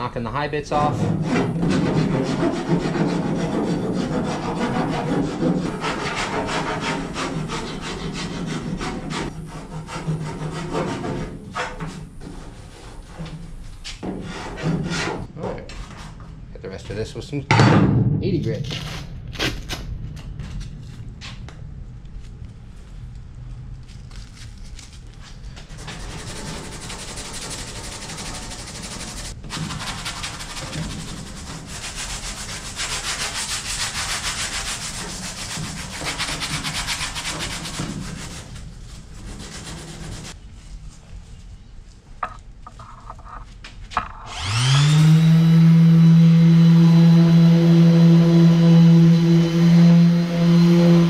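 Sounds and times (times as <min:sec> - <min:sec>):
hand sanding filler: 0:00.7 - 0:13.1, 0:25.7 - 0:40.4, 0:44.3 - 0:51.0
electric sander motor whine: 0:44.3 - 0:51.0.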